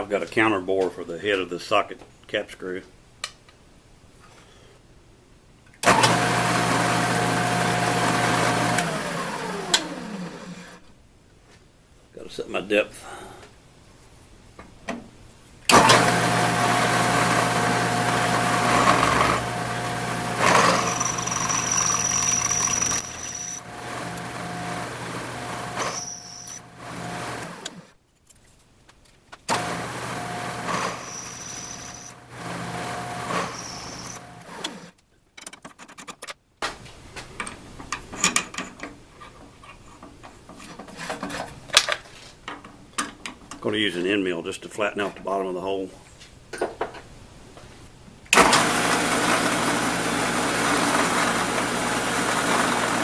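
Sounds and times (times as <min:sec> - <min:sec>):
drill press motor humming: 0:15.8 - 0:27.8, 0:29.5 - 0:34.9
router spindle running: 0:15.8 - 0:27.8
drill bit whine cutting metal: 0:20.3 - 0:23.6, 0:25.6 - 0:26.6, 0:30.7 - 0:32.2, 0:33.3 - 0:34.2.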